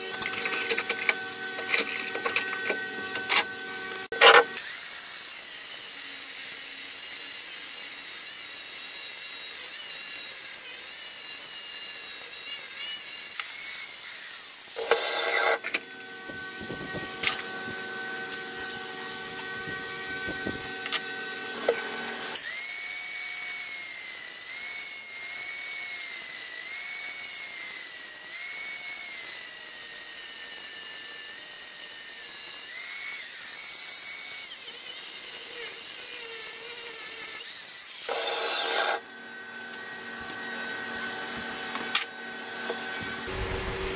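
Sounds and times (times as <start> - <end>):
angle grinder cutting steel: 0.0 - 43.3.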